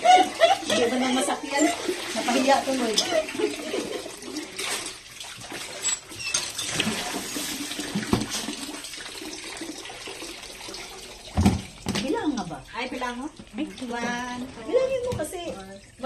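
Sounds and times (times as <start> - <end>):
tap water pouring into metal basin: 0.0 - 16.0
thump: 11.4 - 11.7.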